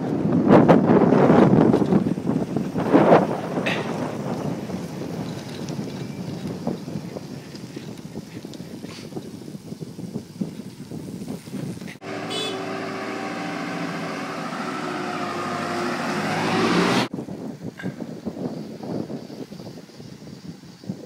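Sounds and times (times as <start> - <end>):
wind noise: 0.0 - 21.0
bicycle tyre noise: 1.0 - 17.1
tractor engine droning: 12.0 - 17.1.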